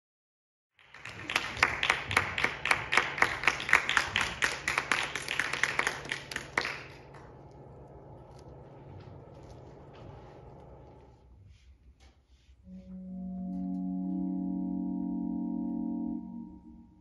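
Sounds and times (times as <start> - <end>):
audience applauding: 0.8 - 9.7.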